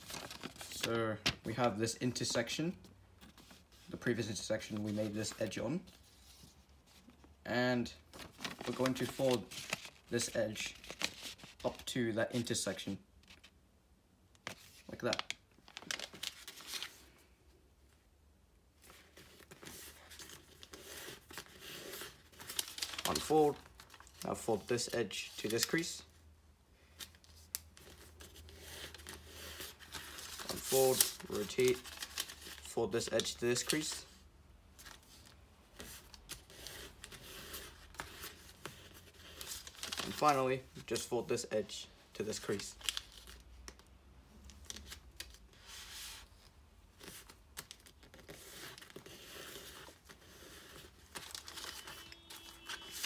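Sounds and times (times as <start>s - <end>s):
paper rustling: 0.0s - 2.5s, 8.1s - 11.9s, 14.4s - 17.2s, 18.8s - 25.9s, 27.0s - 34.2s, 34.8s - 41.1s, 44.4s - 53.0s.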